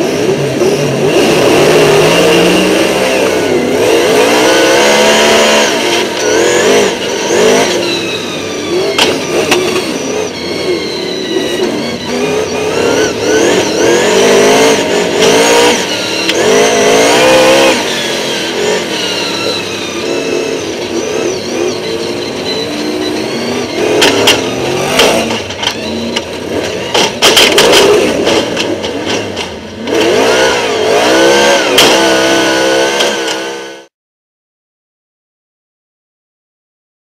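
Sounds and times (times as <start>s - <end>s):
stock car engines revving: 0.0s - 33.9s
sharp knocks and bangs: 23.8s - 30.3s.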